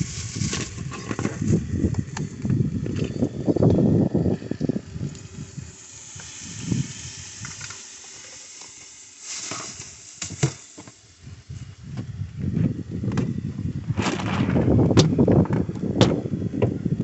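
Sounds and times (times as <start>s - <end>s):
food sizzling in a pan: 5.3s - 11.0s.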